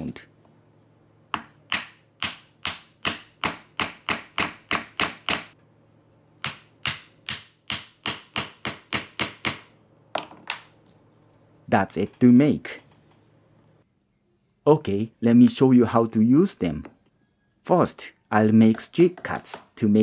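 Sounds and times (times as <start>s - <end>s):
hammer tapping wood: 6.4s - 10.6s, 18.7s - 19.7s.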